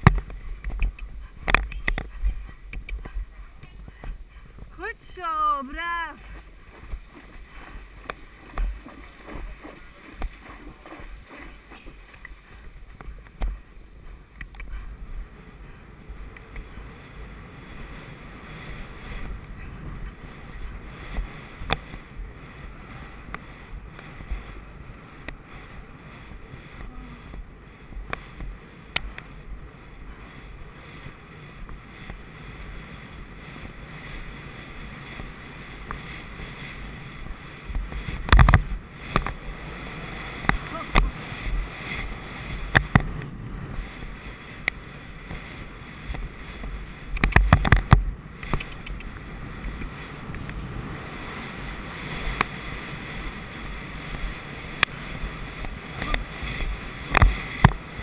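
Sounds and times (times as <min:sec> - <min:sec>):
horse hooves thudding: 0:00.0 - 0:04.8, 0:05.6 - 0:15.5
wind on microphone: 0:00.0 - 0:58.0
horse splashing through water: 0:06.2 - 0:13.7.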